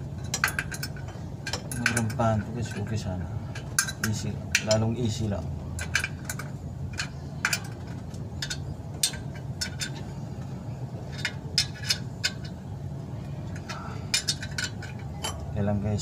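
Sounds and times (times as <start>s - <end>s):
low steady hum: 0.0s - 16.0s
metallic clinks of bolts: 0.2s - 3.0s, 5.7s - 10.2s.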